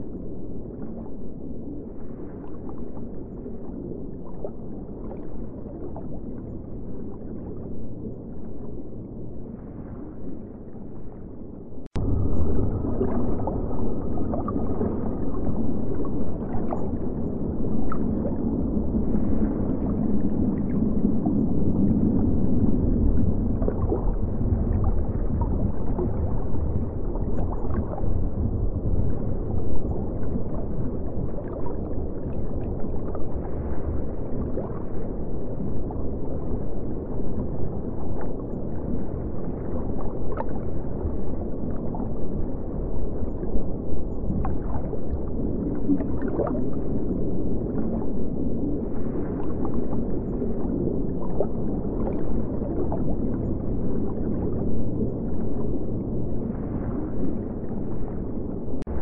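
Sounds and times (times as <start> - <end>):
underwater water rush: 11.9 - 59.0.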